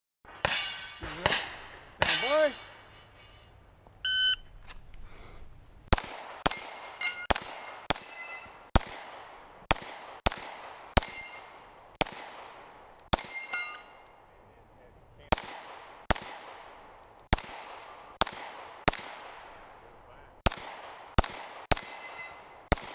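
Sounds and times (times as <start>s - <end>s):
loud metal clangs: 0.3s - 3.6s, 6.4s - 8.8s, 10.9s - 12.0s, 13.1s - 14.1s, 17.3s - 18.2s, 21.6s - 22.7s
steel targets ringing: 0.3s - 4.4s, 6.4s - 8.7s, 11.0s - 12.0s, 13.1s - 14.3s, 17.3s - 18.2s, 21.7s - 22.8s
shot timer beep: 4.0s - 4.5s
pistol shots: 5.9s - 14.0s, 15.3s - 22.9s.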